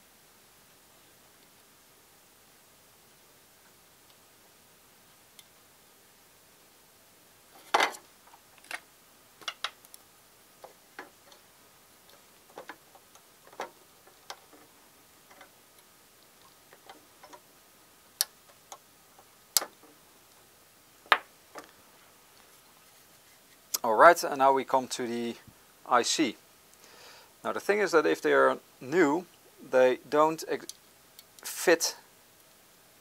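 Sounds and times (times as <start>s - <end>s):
small clicks and taps of parts: 7.7s - 10.0s, 10.6s - 11.4s, 12.1s - 14.7s, 15.3s - 17.4s, 18.2s - 20.0s, 30.6s - 31.5s.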